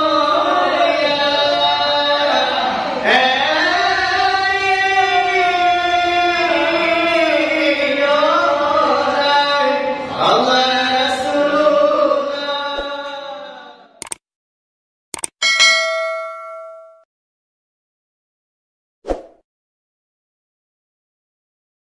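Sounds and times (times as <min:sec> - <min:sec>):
sharp clicks: 0:14.0 - 0:14.2, 0:15.1 - 0:15.4.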